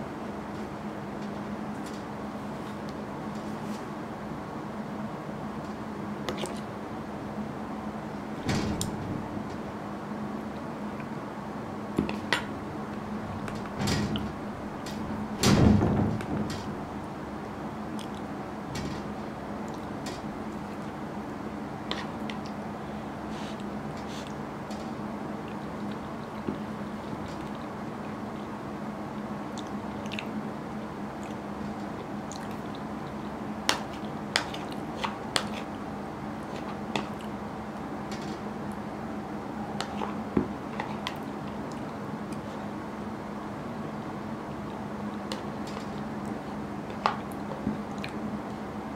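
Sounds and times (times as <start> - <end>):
steady low hum: 0.0 - 48.9
soft chewing: 17.9 - 18.3, 23.3 - 24.4, 25.4 - 28.2, 29.5 - 30.4, 31.2 - 35.8, 44.7 - 48.2.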